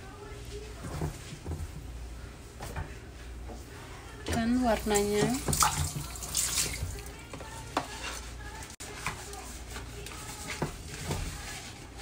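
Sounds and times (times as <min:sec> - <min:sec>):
rice rustling on platter: 0:07.8 - 0:12.0.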